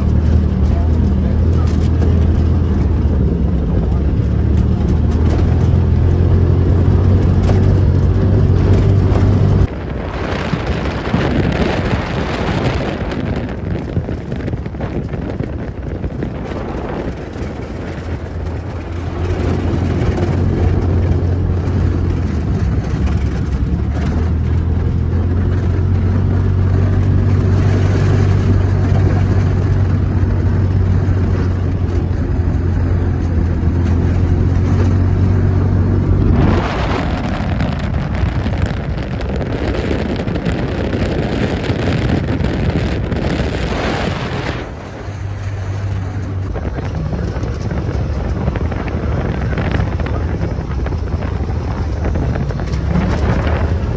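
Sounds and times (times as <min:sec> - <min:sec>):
off-road vehicle engine: 0:00.0 - 0:53.9
wind rushing: 0:05.8 - 0:22.7, 0:33.8 - 0:53.9.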